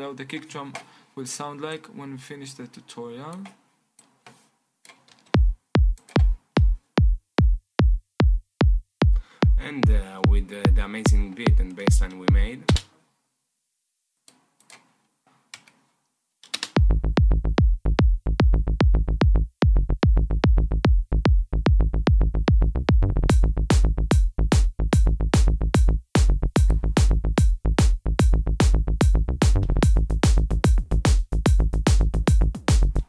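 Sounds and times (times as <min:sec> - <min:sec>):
bassline: 0:05.4 - 0:12.8, 0:16.8 - 0:33.0
electronic dance kick drum: 0:05.4 - 0:12.8, 0:16.8 - 0:33.0.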